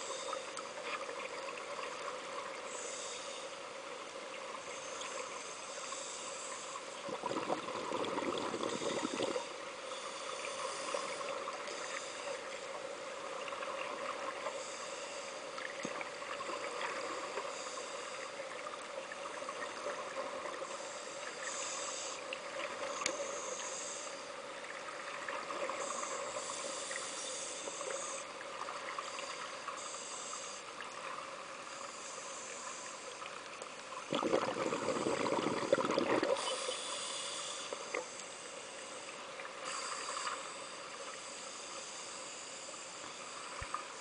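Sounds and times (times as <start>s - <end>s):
regulator breath hiss underwater: 2.5s - 3.8s, 4.7s - 12.7s, 14.4s - 15.6s, 16.5s - 18.6s, 20.6s - 24.4s, 25.7s - 28.4s, 29.0s - 30.8s, 31.7s - 33.3s, 34.1s - 44.0s
rush of exhaled bubbles: 7.0s - 9.4s, 34.1s - 36.5s.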